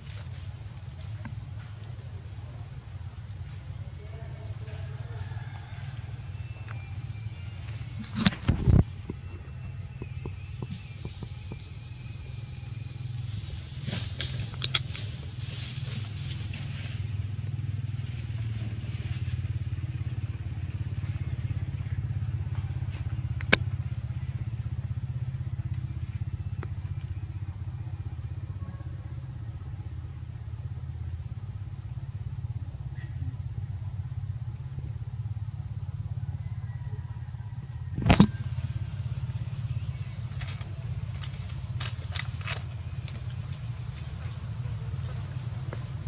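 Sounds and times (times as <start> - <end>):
engine humming: 0.0 - 46.0
sharp click: 38.0 - 38.4.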